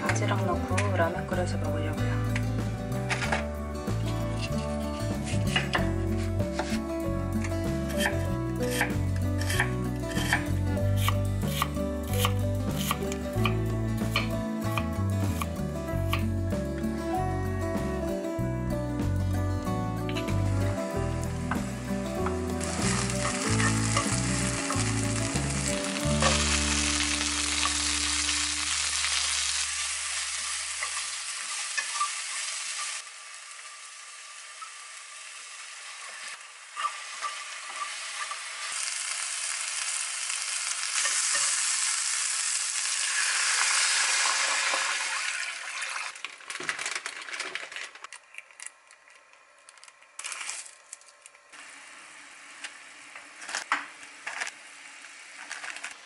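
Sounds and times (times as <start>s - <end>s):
vegetables sizzling in a frying pan: 4.4s - 15.4s, 20.9s - 46.5s, 51.6s - 56.0s.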